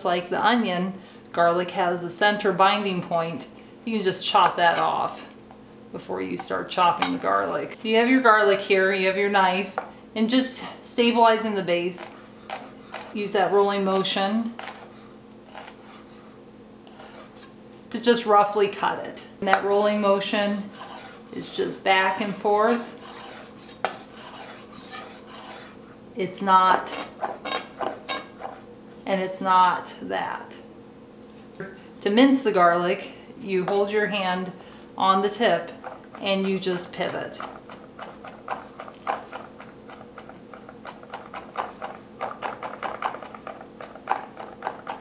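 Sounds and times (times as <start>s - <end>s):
knife scraping cutting board: 6.8s - 8.7s, 11.9s - 17.6s, 19.4s - 26.0s, 26.8s - 28.7s, 35.7s - 45.0s
knife chopping on wooden board: 22.2s - 25.7s.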